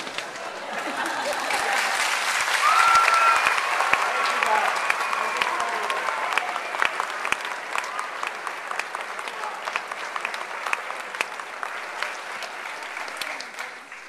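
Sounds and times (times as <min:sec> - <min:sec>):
large audience applauding: 0:00.0 - 0:14.0
cheers and shouts: 0:01.1 - 0:08.4.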